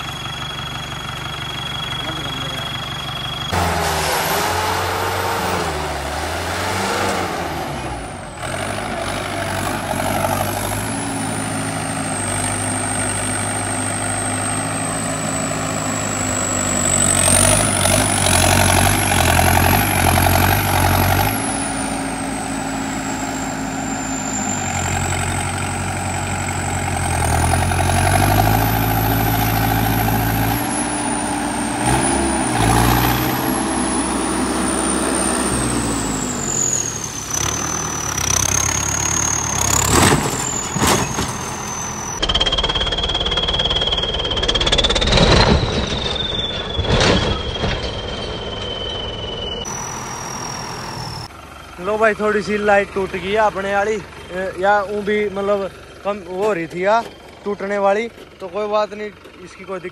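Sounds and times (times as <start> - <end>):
tractor diesel engine revving: 0.0 - 59.9
high turbo whistle: 40.5 - 51.3.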